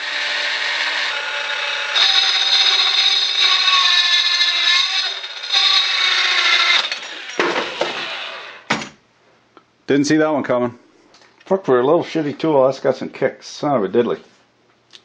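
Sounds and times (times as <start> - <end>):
angle grinder grinding plastic: 0.0 - 8.7.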